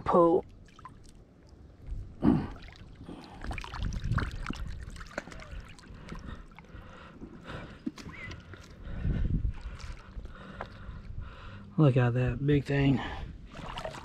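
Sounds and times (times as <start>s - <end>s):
water splashing around log: 0.4s - 1.6s, 2.5s - 6.7s, 13.5s - 14.0s.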